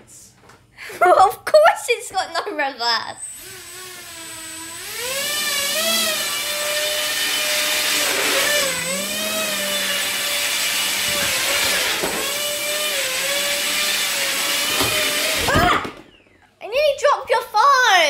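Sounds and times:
electric motor whine: 0:03.2 - 0:15.5.

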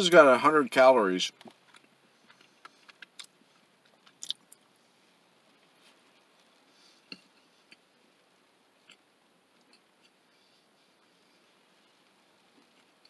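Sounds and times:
person chewing cookie: 0:01.5 - 0:04.8, 0:05.4 - 0:07.9, 0:08.8 - 0:11.1.

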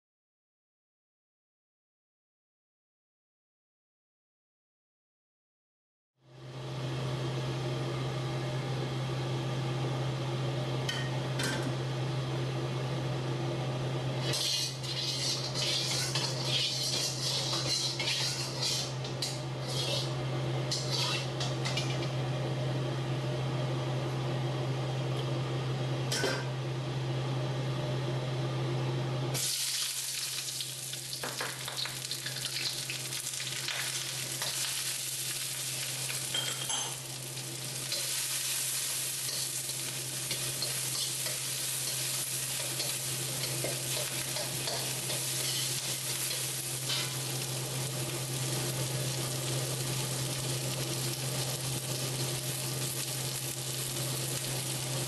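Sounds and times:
food sizzling in oil: 0:14.1 - 0:22.1, 0:29.4 - 0:55.0
metal ladle scraping wok: 0:14.2 - 0:22.0, 0:42.7 - 0:46.0.

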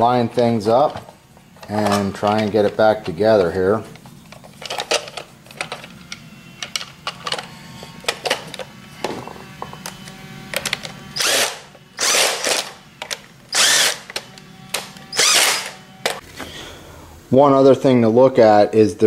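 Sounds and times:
plastic housing clicks and rattles: 0:04.3 - 0:08.7
cordless drill driving screws: 0:10.8 - 0:12.8, 0:13.5 - 0:15.8.

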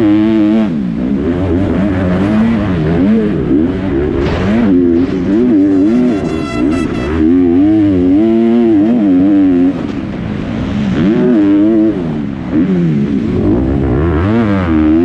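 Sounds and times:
motocross bike engine revving: 0:00.0 - 0:15.0.

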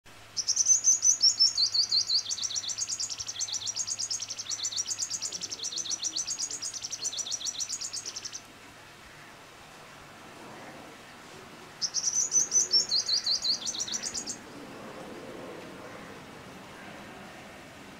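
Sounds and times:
bird singing high thin notes: 0:11.8 - 0:14.4.

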